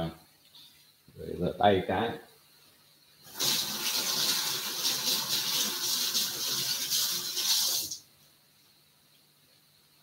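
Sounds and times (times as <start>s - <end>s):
tap water running on hands: 3.3s - 8.0s.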